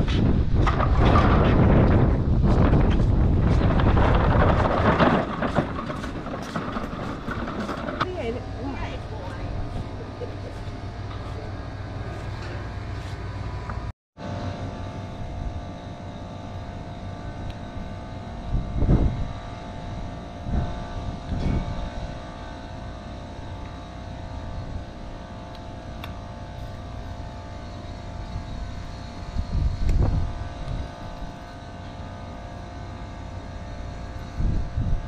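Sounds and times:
wind buffets on microphone: 0.0 - 11.0, 17.1 - 26.6, 28.1 - 31.6, 34.0 - 35.0
machine drone: 0.0 - 35.0.

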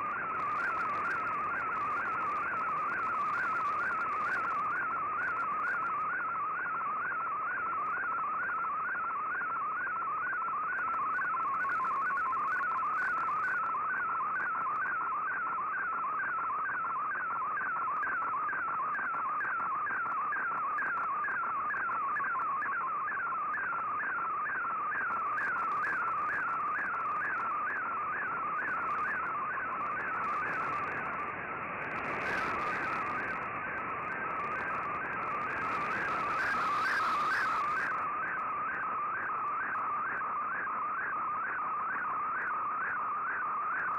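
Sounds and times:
warbling radio tone: 25.2 - 38.2.

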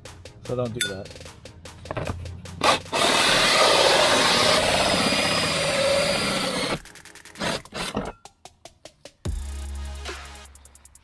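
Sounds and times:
drill cutting into siding: 2.6 - 8.1.

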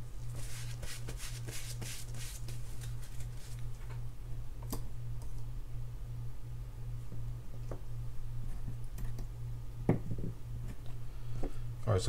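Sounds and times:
steady low hum: 0.0 - 12.0
paper towel rustling: 0.3 - 3.9.

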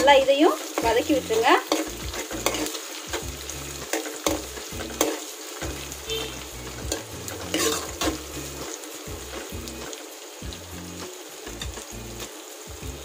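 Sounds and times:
vegetables sizzling in hot oil: 0.0 - 13.0
steel ladle scraping and clinking pan: 1.7 - 3.2, 3.8 - 8.3.

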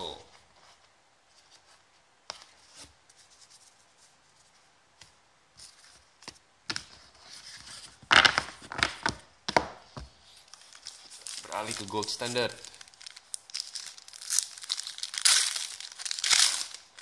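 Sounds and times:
foil pack rustling: 10.5 - 17.0.

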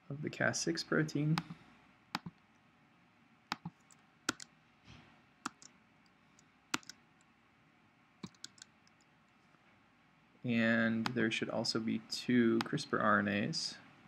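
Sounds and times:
computer mouse clicks: 2.2 - 2.4, 3.5 - 4.5, 5.5 - 5.7, 6.4 - 7.0, 8.2 - 9.1
keyboard key clicks: 8.2 - 8.7.

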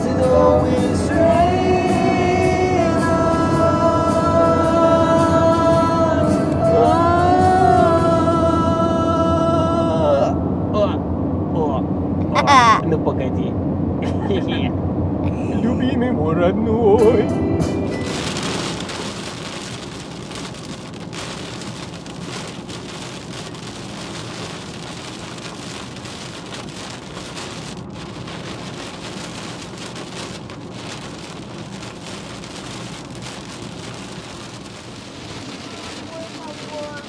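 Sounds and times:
heavy rain on car windshield: 17.9 - 37.0.

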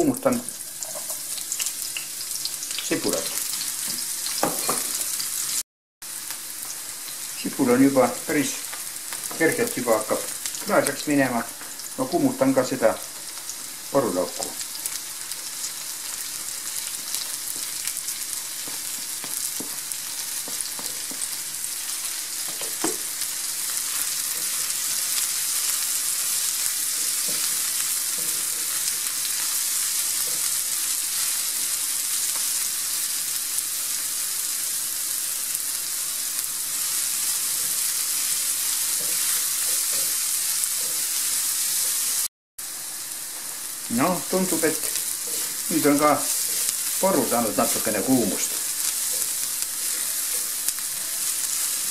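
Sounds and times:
vegetables sizzling in a frying pan: 0.0 - 51.9
spatula stirring in pan: 16.3 - 32.6, 36.4 - 42.2, 44.4 - 51.9.

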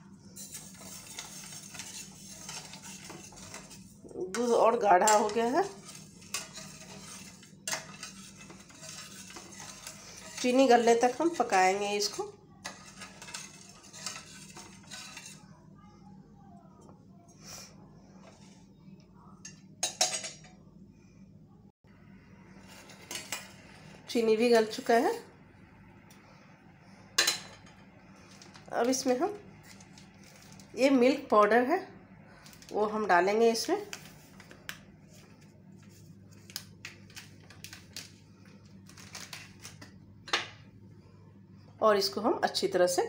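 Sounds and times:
steady low hum: 0.0 - 43.0
spatula scraping a metal pot: 0.3 - 15.5.

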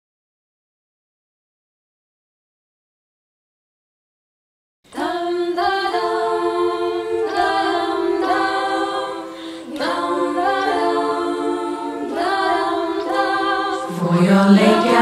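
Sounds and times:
a cappella choir singing chords: 4.9 - 15.0.

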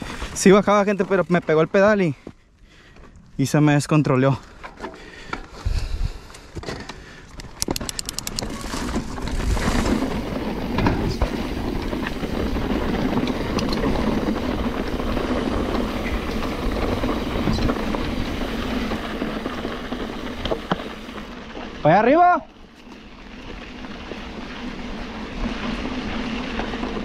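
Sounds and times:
bike rattling: 0.0 - 27.0
bike freewheel clicks: 7.4 - 9.1
tyres rumbling on dirt: 7.6 - 27.0.

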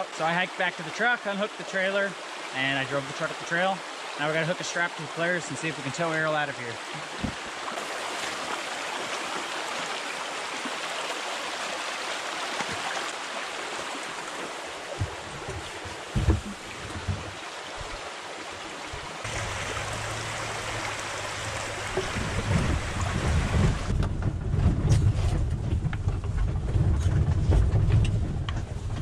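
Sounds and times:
creek water rushing over rocks: 0.0 - 24.0
low thumps: 14.9 - 18.0, 19.2 - 29.0
low engine hum: 19.2 - 29.0.

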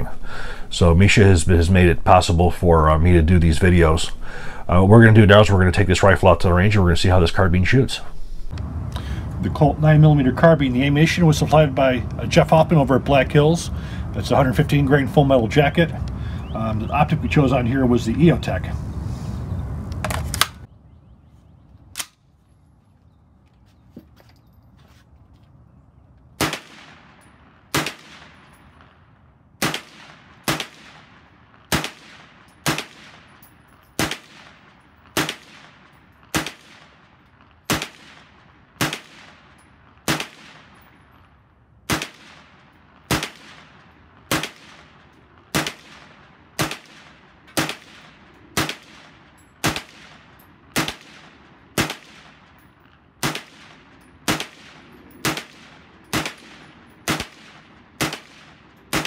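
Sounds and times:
carbine firing single shots: 26.4 - 41.1, 41.8 - 59.0.

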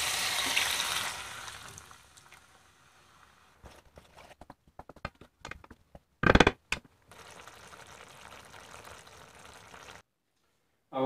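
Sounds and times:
sauce bubbling: 7.1 - 10.0.

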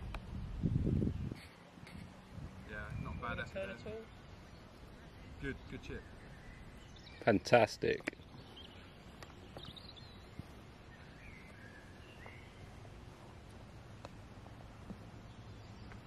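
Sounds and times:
bird chirps: 2.7 - 12.8.

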